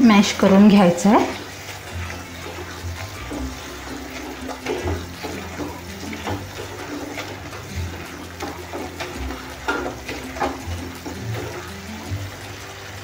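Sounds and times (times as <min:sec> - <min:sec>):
wet squelching of masher: 0:00.5 - 0:13.0
masher knocking on pan: 0:02.3 - 0:11.8.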